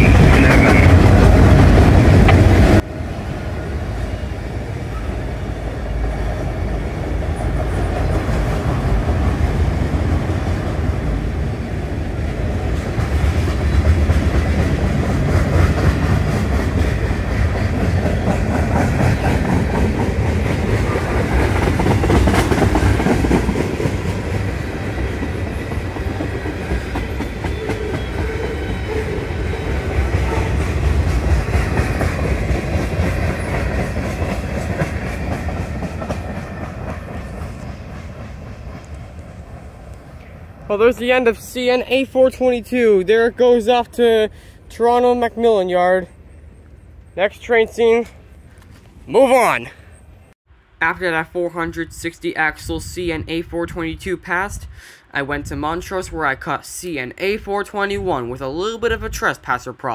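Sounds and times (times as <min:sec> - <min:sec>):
wheels clacking over rail joints: 0:00.0 - 0:02.8, 0:11.9 - 0:41.7
freight train rolling past: 0:00.0 - 0:59.9.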